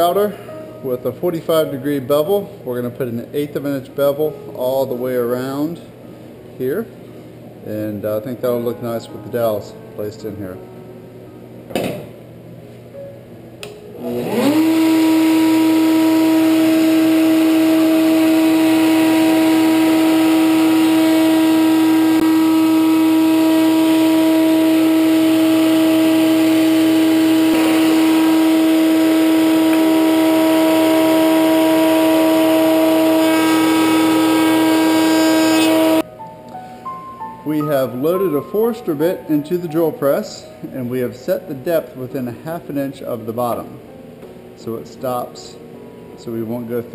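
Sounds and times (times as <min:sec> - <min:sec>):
router whining: 0:14.0 - 0:36.0.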